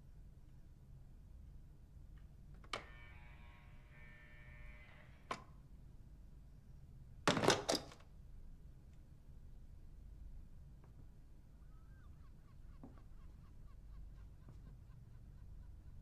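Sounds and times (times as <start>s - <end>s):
door-release buzzing: 2.6s - 5.5s.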